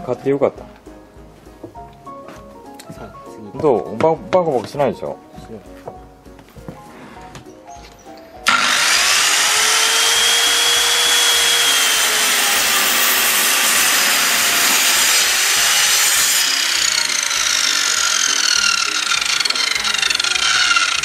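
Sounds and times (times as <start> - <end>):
circular saw cutting wood: 8.4 - 21.0.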